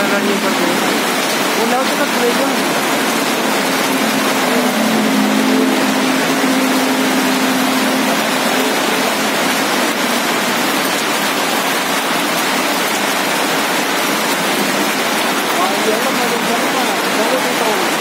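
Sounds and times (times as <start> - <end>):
heavy rain and hail on road: 0.0 - 18.0.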